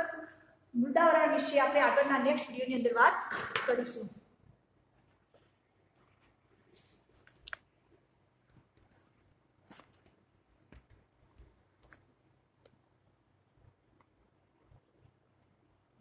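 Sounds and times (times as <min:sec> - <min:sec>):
pen clicks: 0:09.7 - 0:12.8.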